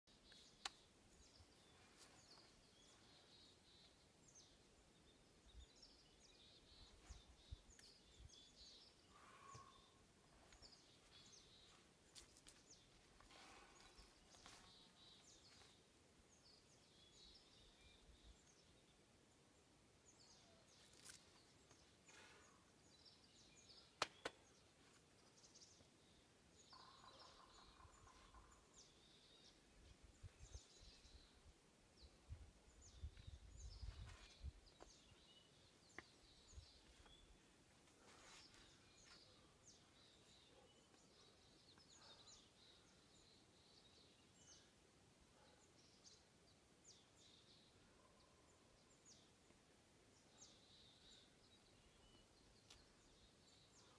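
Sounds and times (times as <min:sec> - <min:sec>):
soft clicks: 0:00.3 - 0:00.8.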